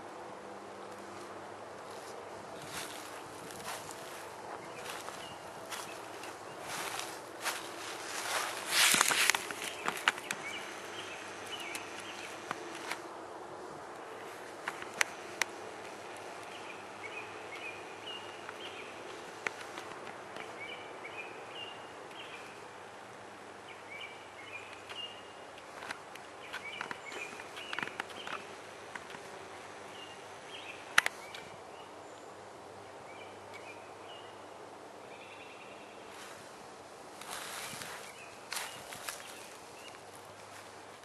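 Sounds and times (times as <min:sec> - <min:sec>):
steady outdoor hiss: 0:00.0 - 0:41.0
rustling in dry leaf litter: 0:01.0 - 0:13.0, 0:36.1 - 0:41.0
small songbirds chirping: 0:01.9 - 0:13.0, 0:14.0 - 0:36.5, 0:37.2 - 0:41.0.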